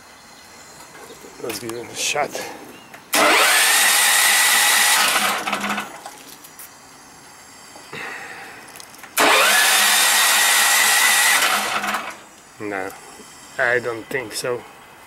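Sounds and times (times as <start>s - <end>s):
generator engine cranking: 3.1s - 6.2s, 9.1s - 12.4s.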